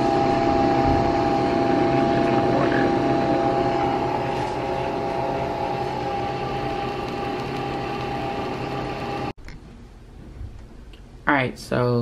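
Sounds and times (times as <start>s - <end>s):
coffee machine whirring hum: 0.0s - 9.4s.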